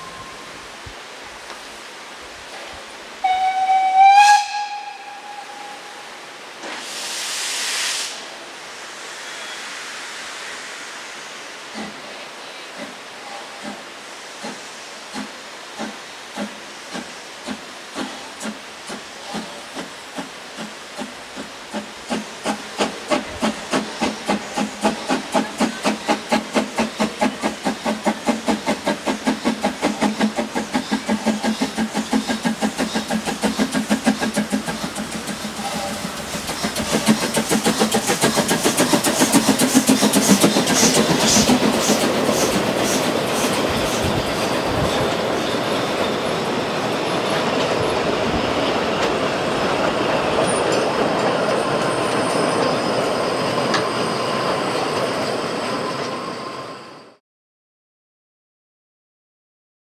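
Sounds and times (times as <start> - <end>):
train coaches clattering past: 11.6 - 57.2
steam locomotive chuffing: 12.8 - 57.2.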